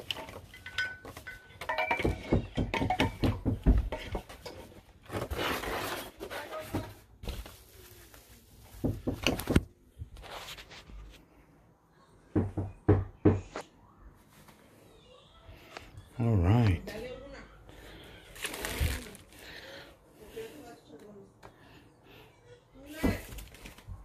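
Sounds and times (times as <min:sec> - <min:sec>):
rustling: 0:03.9 - 0:11.4, 0:17.7 - 0:19.8.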